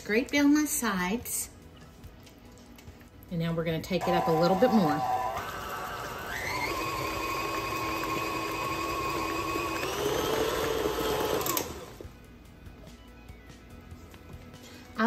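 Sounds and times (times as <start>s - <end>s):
stand mixer motor whine: 4.0s - 12.0s
beater mashing potatoes: 4.0s - 12.1s.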